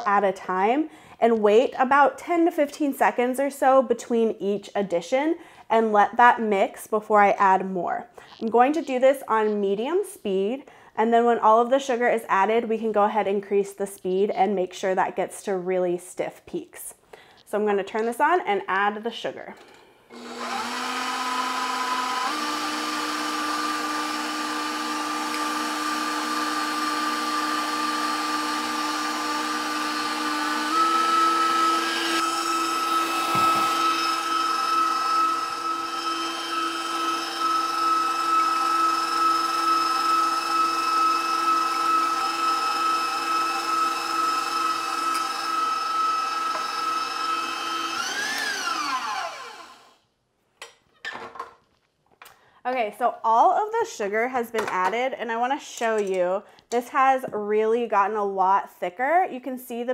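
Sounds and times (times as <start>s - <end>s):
stand mixer motor whining: 20.1s - 50.0s.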